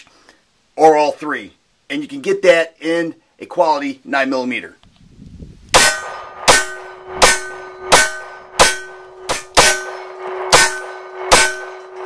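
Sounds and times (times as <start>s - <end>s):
pistol shots echoing: 5.8s - 12.0s.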